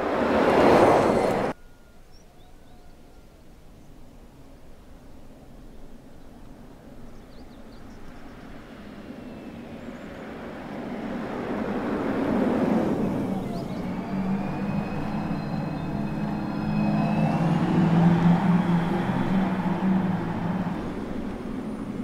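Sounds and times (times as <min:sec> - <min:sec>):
electric car passing by: 0:08.0 - 0:22.0
tyre and road noise: 0:08.7 - 0:22.0.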